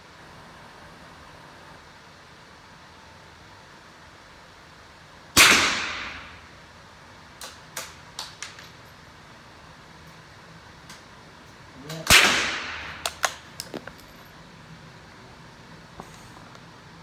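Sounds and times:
rifle shot: 0:05.4 - 0:06.5, 0:12.0 - 0:13.4.

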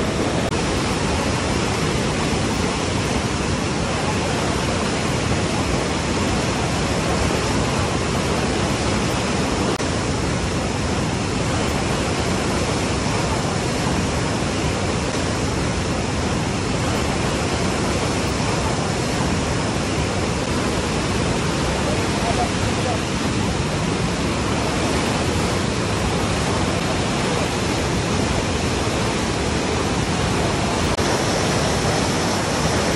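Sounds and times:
white water rushing through rocks: 0:00.0 - 0:32.9.

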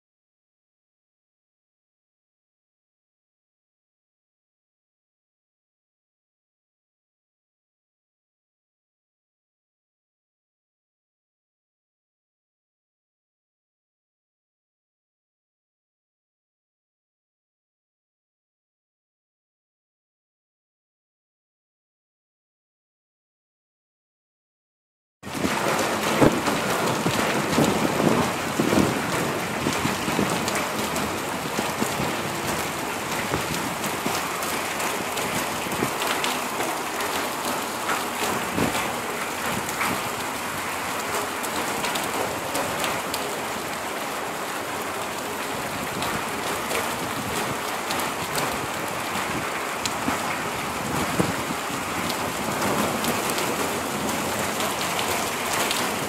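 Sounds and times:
rain on concrete rooftops: 0:25.2 - 0:56.0.

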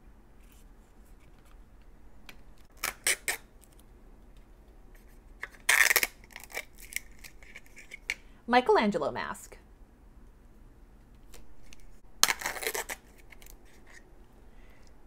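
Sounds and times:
sticker seal tearing rustle: 0:02.6 - 0:03.9, 0:05.4 - 0:08.1, 0:11.3 - 0:14.1.

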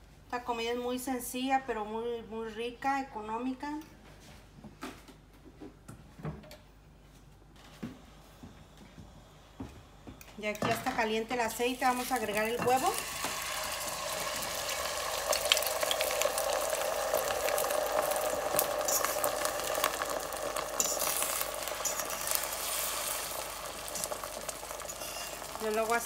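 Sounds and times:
eggs sizzling in hot oil: 0:10.5 - 0:26.0.

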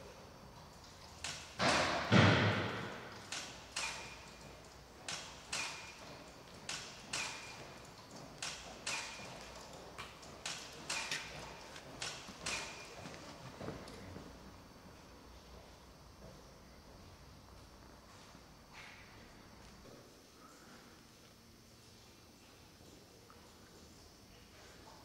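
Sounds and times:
loud thud: 0:01.6 - 0:03.0.

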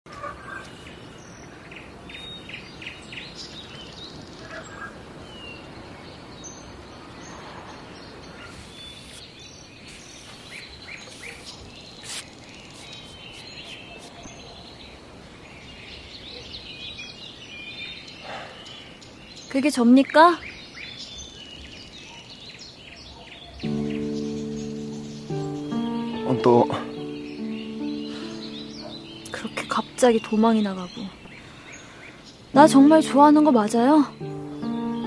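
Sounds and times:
small birds chirping: 0:00.1 - 0:35.0.

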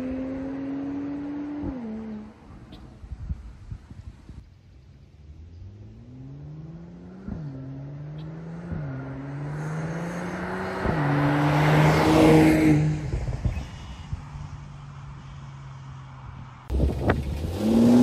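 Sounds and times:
car accelerating hard: 0:00.0 - 0:03.0, 0:05.2 - 0:13.7, 0:16.7 - 0:18.0.

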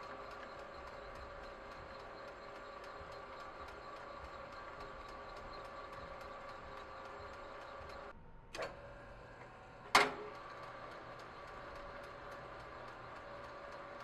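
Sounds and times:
fast regular ticking: 0:00.0 - 0:08.1
lathe motor whine: 0:00.0 - 0:14.0.

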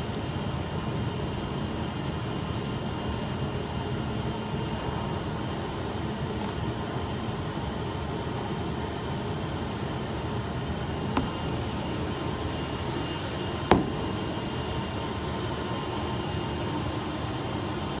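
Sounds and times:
industrial blower droning: 0:00.0 - 0:18.0
knocks of panel pieces handled: 0:13.7 - 0:14.1.

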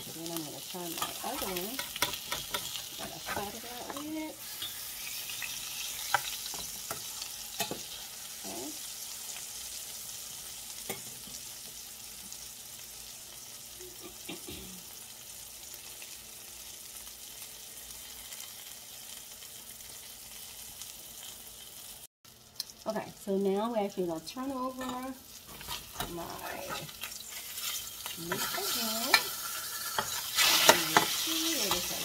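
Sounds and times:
patties sizzling in a skillet: 0:00.0 - 0:32.0.

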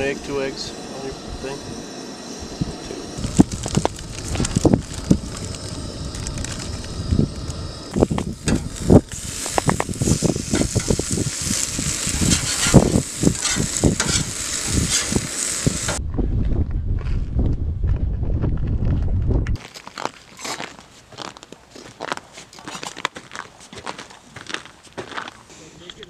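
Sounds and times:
wind rumble on microphone: 0:00.0 - 0:19.6
food sizzling on a griddle: 0:02.9 - 0:16.0
metal spatula scraping griddle: 0:08.4 - 0:15.9.

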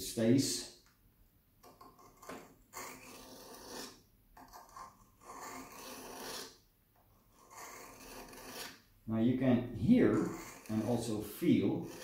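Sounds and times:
knife rasping on whetstone: 0:01.8 - 0:06.6, 0:07.2 - 0:08.8, 0:10.0 - 0:12.0.

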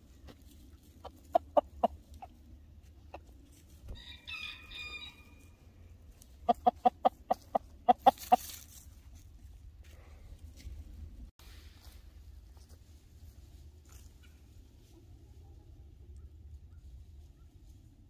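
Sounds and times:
rooster clucking: 0:01.0 - 0:02.4, 0:06.4 - 0:08.6.

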